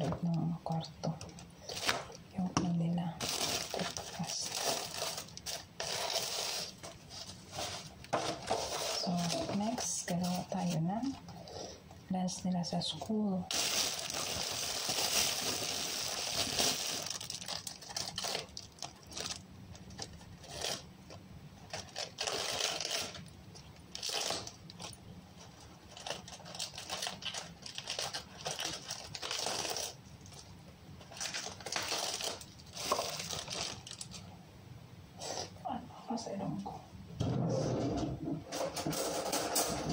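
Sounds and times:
plastic bag crinkling: 3.1 - 11.3, 13.4 - 20.9, 21.7 - 34.3.

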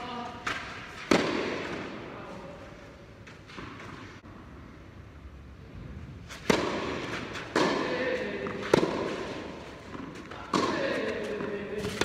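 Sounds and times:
racquet hitting ball: 0.4 - 2.0, 6.4 - 12.0.

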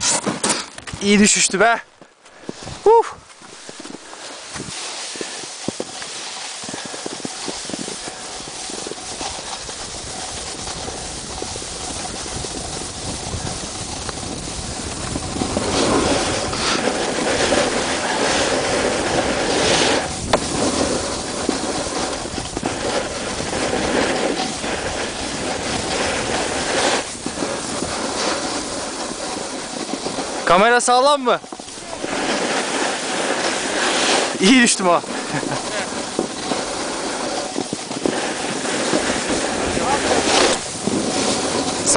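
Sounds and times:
wind on microphone: 6.6 - 30.6, 31.4 - 41.9.

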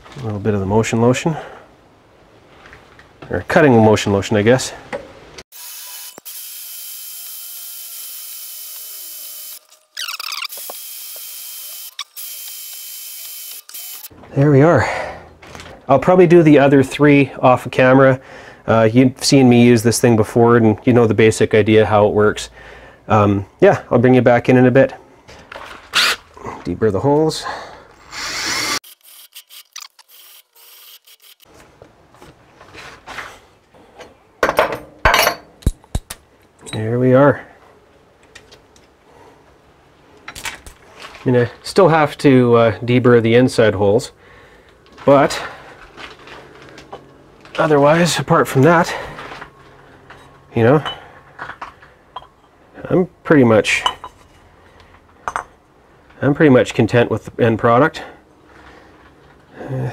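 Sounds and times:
electric drill drilling steel: 5.5 - 14.1, 28.0 - 31.5.

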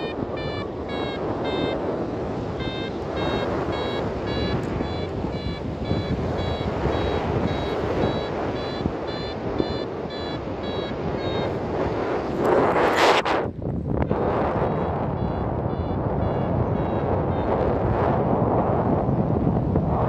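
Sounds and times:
variometer beeping: 0.0 - 12.2, 14.1 - 17.8
wind rush on microphone: 0.0 - 20.0.

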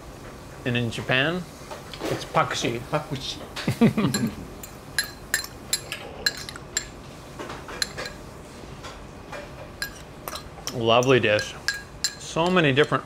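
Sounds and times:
cutlery clinking on a plate: 7.7 - 8.2.

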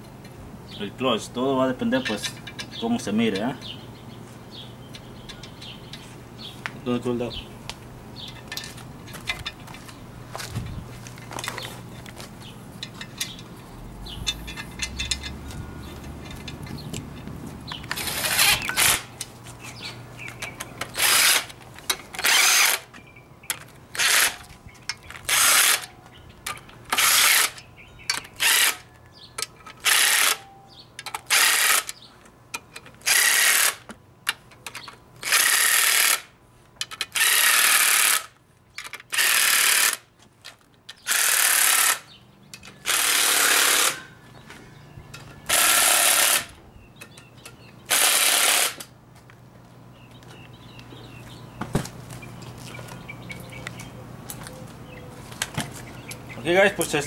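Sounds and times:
handling noises: 2.0 - 37.4, 38.1 - 57.0
power tool bursts on bolts: 21.0 - 21.5, 22.2 - 22.9, 25.3 - 25.9, 26.9 - 28.8, 29.8 - 30.4, 31.1 - 32.0, 36.9 - 40.0, 41.0 - 42.1, 42.8 - 44.0, 45.5 - 46.5, 47.9 - 48.9.

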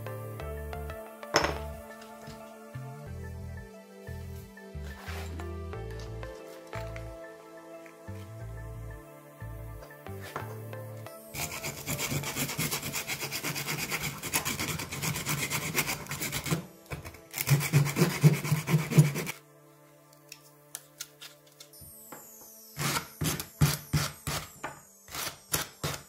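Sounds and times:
sandpaper rubbing wood: 11.4 - 16.7, 17.3 - 19.4.

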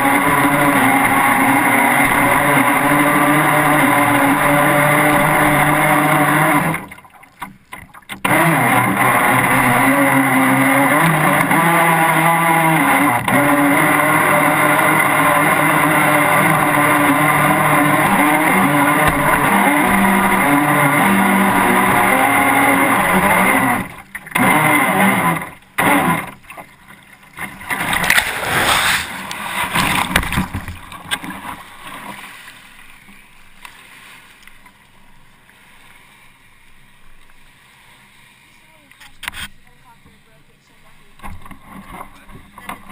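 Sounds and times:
rc boat motor running: 0.0 - 31.7.

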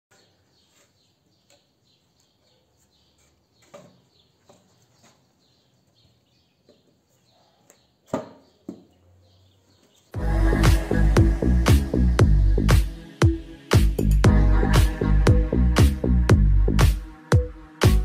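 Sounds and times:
faint bird chirps: 0.1 - 10.1.

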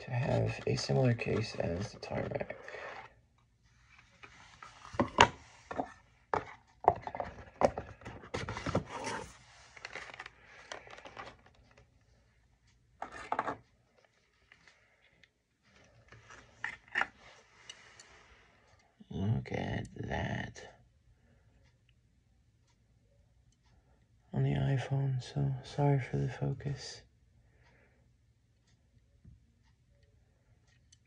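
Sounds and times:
plastic clicks and scraping: 3.9 - 11.9, 13.0 - 14.8.

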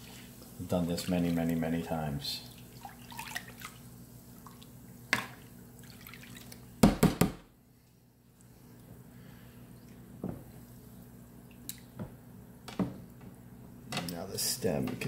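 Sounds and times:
chemical bath fizzing and dripping: 0.0 - 6.8.

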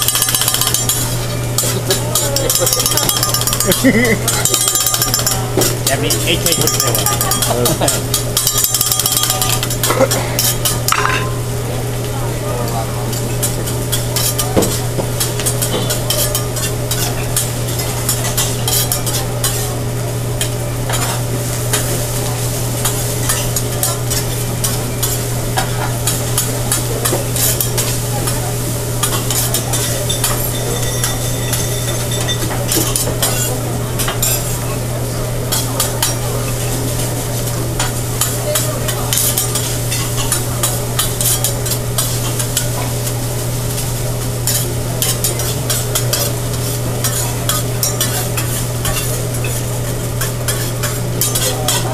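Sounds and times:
metal spatula scraping and tapping: 0.0 - 3.8, 13.1 - 19.6, 37.8 - 42.7, 44.4 - 51.8
rice sizzling on a griddle: 0.0 - 51.9.

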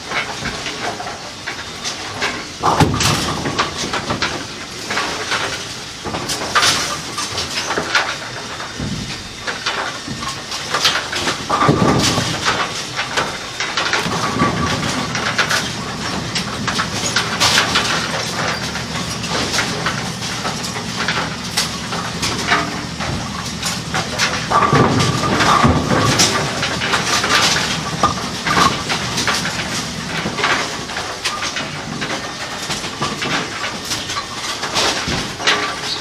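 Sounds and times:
clicks and knocks of pins: 0.1 - 36.0
low machine hum: 11.0 - 32.6.

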